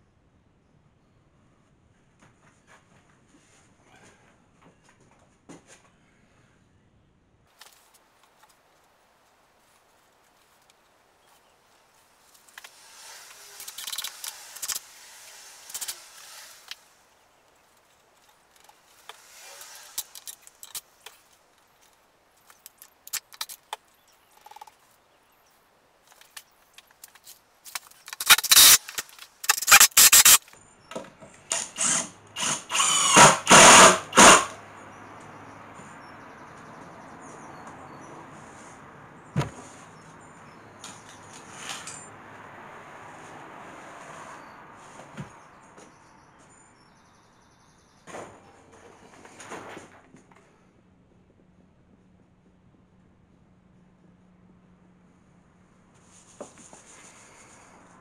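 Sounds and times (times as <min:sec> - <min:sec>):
wooden tabletop scraping and knocking: 0:39.4 - 0:39.7.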